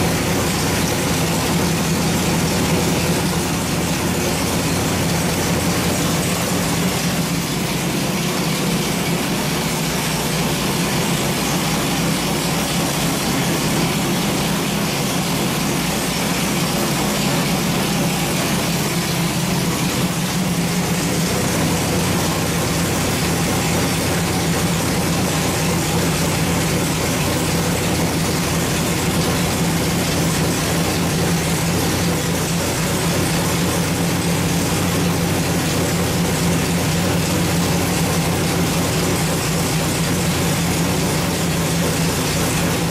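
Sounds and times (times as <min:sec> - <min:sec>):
race engine idling: 0:00.0 - 0:42.9.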